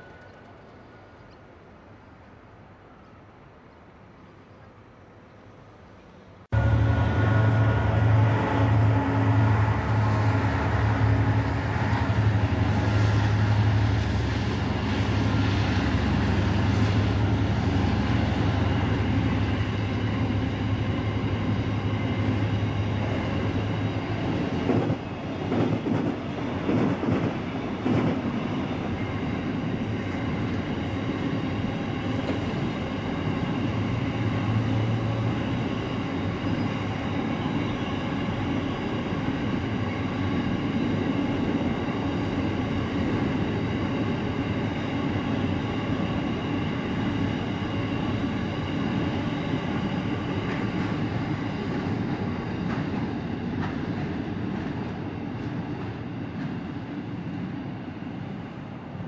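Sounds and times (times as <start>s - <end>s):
freight train rolling past: 0.0s - 59.0s.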